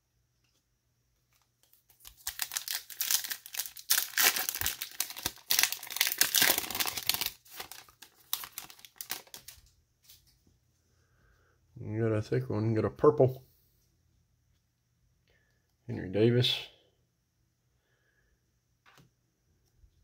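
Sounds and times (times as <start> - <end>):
foil wrapper tearing and crinkling: 1.6 - 9.6.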